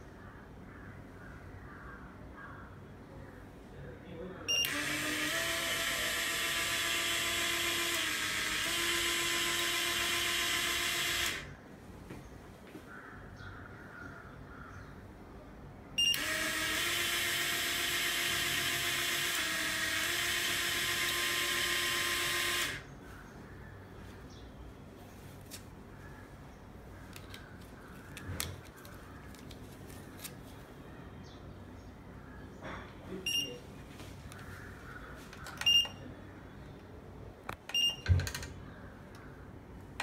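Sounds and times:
small gear motor whining: 0:04.6 - 0:11.5, 0:16.0 - 0:22.9.

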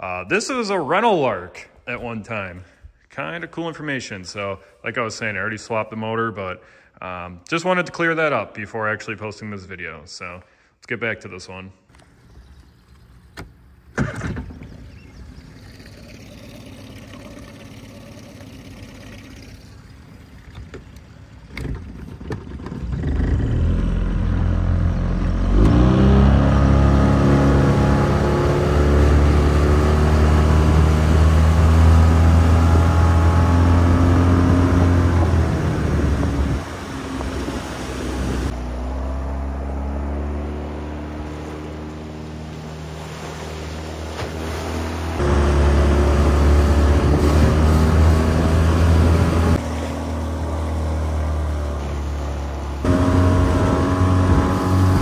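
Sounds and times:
small outboard motor running: 0:14.0 - 0:55.0.

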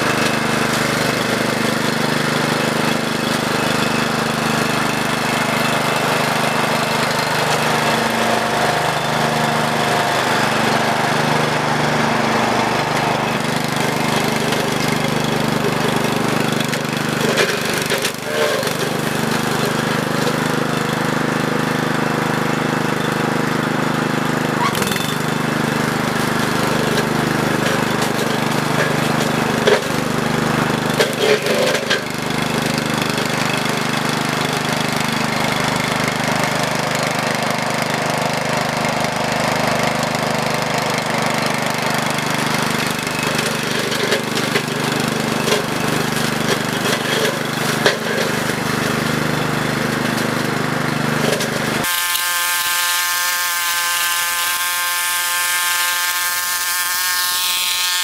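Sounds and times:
brush mower engine running: 0:00.0 - 0:58.0
thin high buzz: 0:51.8 - 0:58.0.

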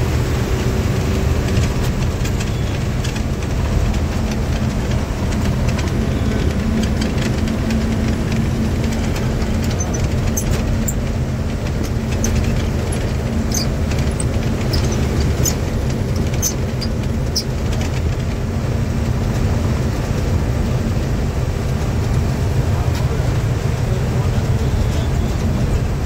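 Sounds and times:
road noise: 0:00.0 - 0:26.0
truck diesel engine drone: 0:00.0 - 0:26.0.

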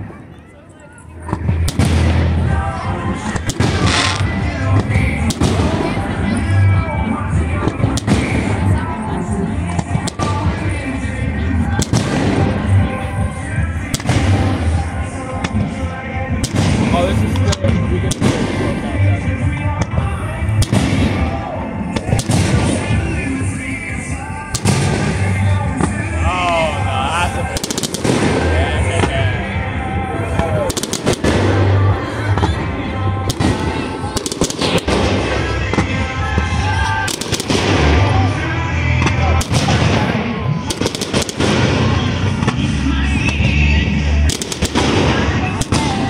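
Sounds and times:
fireworks bursting: 0:01.1 - 0:46.0
fireworks shells bursting: 0:03.3 - 0:05.8, 0:27.4 - 0:29.2, 0:33.3 - 0:38.2.

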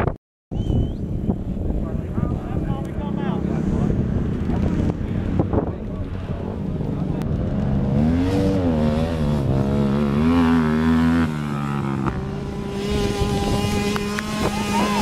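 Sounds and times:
quad engines revving: 0:03.4 - 0:15.0.

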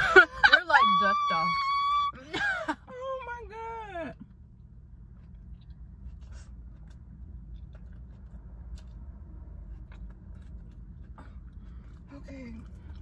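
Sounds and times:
low rumble inside car cabin: 0:00.0 - 0:13.0
clicks and rustles of eating: 0:05.0 - 0:13.0.

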